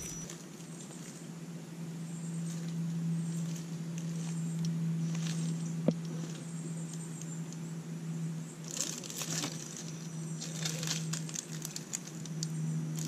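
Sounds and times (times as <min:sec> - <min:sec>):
tyres crunching over dirt: 0:00.0 - 0:00.4
electric motor hum with whine: 0:00.0 - 0:13.0.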